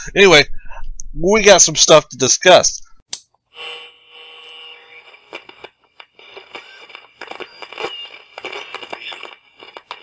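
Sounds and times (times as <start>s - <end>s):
electronic tone chord: 3.5s - 5.2s
crackles and clicks: 5.0s - 10.0s.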